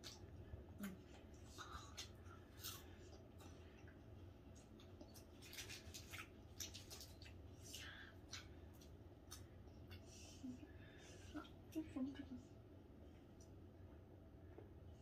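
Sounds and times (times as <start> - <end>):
children chewing chocolate: 0.0 - 11.8.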